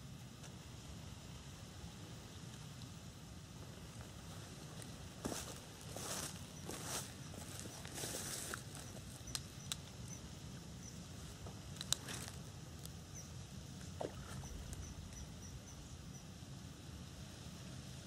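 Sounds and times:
low steady rumble: 0.0 - 18.0.

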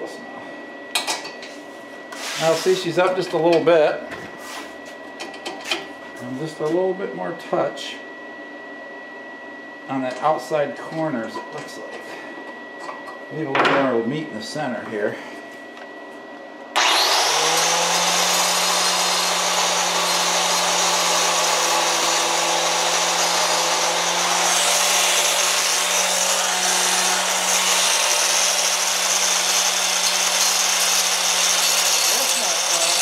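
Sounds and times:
angle grinder grinding steel: 16.8 - 33.0.

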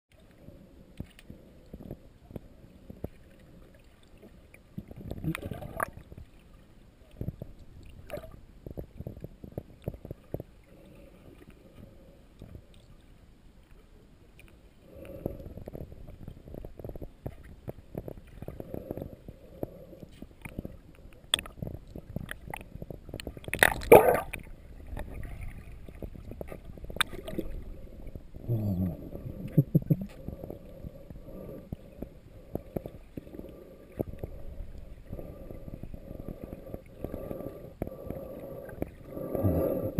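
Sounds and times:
muffled underwater noise: 13.7 - 39.9.

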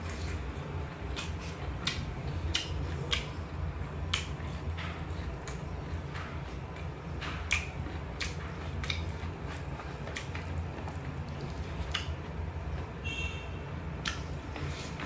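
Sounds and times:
person chewing food: 0.0 - 13.0, 13.9 - 15.0
steady low hum: 0.0 - 15.0
wet lip-smacking clicks: 1.2 - 3.4, 4.1 - 4.4, 7.5 - 9.2, 11.9 - 12.2, 14.0 - 14.3.

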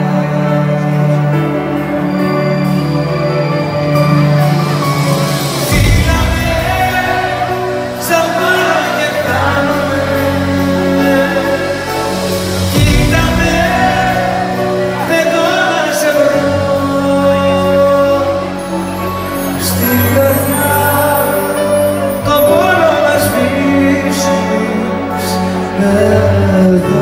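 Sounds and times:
man singing pop ballad: 0.0 - 2.8, 5.6 - 27.0
backing band with bass: 0.0 - 27.0.

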